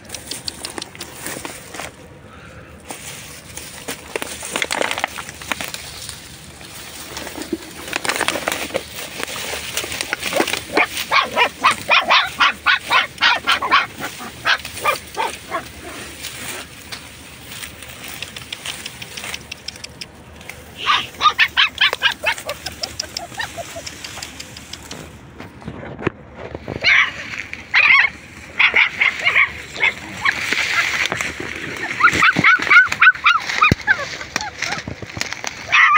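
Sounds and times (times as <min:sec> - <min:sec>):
puppy yelping: 0:10.3 - 0:16.6, 0:20.8 - 0:24.3, 0:26.8 - 0:31.0, 0:31.8 - 0:34.9, 0:35.7 - 0:35.9.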